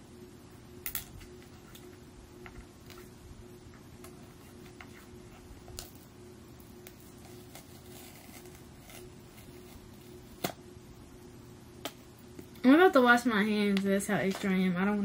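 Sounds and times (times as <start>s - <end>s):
faint hum: 0.0s - 15.0s
nails scratching paper wrap: 7.0s - 10.2s.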